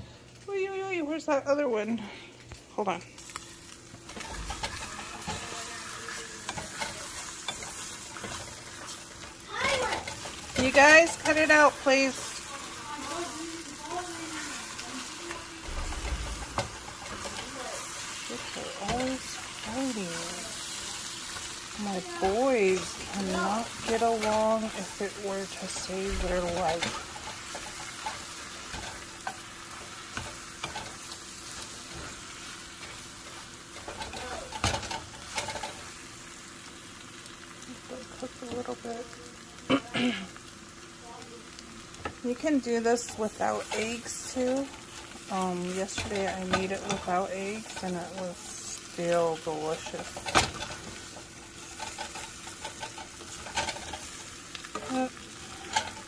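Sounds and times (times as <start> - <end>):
food sizzling in frying pan: 0.0 - 56.0
spatula scraping pan: 4.1 - 36.1, 42.0 - 56.0.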